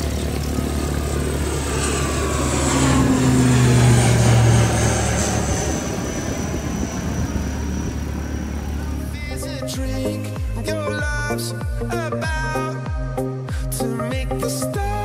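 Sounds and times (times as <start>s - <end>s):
high whine sliding down in pitch: 0.0s - 9.6s
turboprop airliner passing overhead: 0.0s - 15.0s.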